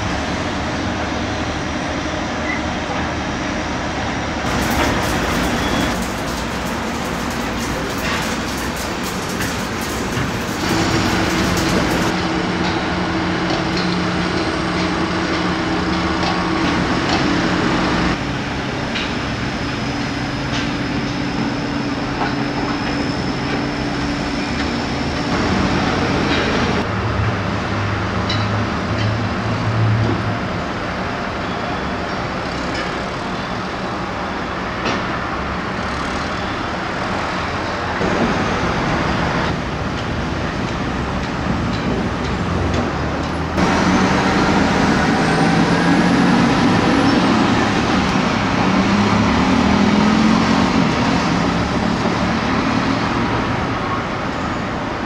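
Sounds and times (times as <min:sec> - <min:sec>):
site and traffic noise: 0:00.0 - 0:55.0
diesel machinery running: 0:00.1 - 0:27.1, 0:39.0 - 0:52.3.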